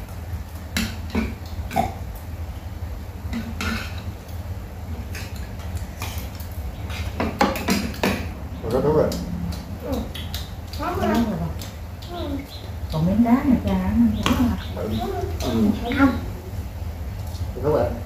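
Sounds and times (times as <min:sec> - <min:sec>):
steady low hum: 0:00.0 - 0:18.0
chopsticks tapping on bowls: 0:07.1 - 0:08.3, 0:09.1 - 0:16.1.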